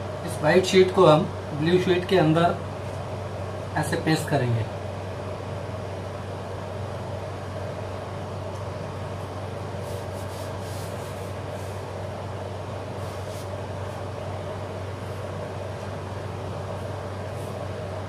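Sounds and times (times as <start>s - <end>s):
low hum of room noise: 0.0s - 18.0s
hands brushing paper: 9.8s - 11.9s, 13.0s - 13.6s.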